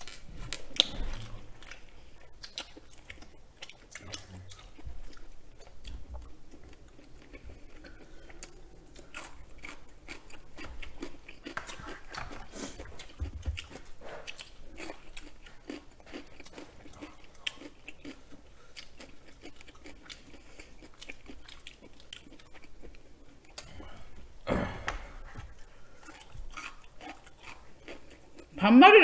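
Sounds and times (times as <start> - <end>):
chewing and eating: 0.0 - 24.4, 25.2 - 28.6.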